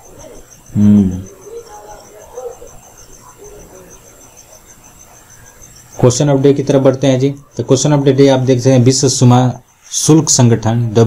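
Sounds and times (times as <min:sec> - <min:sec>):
high-pitched rapid chirping: 0:00.0 - 0:10.6
man's short low vocal sound: 0:00.8 - 0:01.2.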